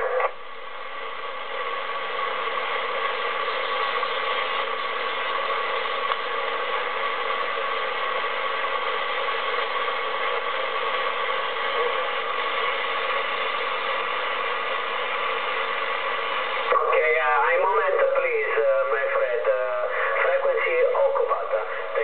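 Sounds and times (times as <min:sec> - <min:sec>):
radio static hissing: 0:00.0 - 0:22.0.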